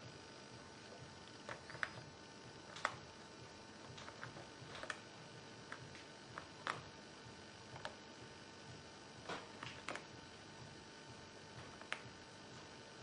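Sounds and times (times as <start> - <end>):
guinea pig gnawing clicks: 1.5 - 2.0, 2.7 - 3.0, 3.8 - 5.1, 5.7 - 6.9, 11.6 - 12.1.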